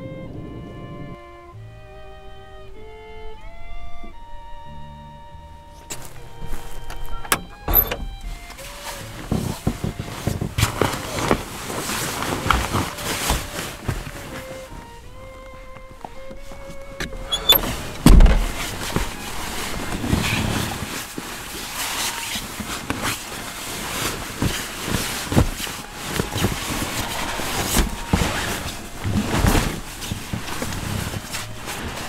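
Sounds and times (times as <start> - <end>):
body shuffling: 5.4 - 32.0
sleeping bag rustling: 5.7 - 32.0
heavy thump: 5.8 - 11.4, 16.6 - 20.8, 26.2 - 30.8
bumps and knocks against seats: 5.8 - 32.0.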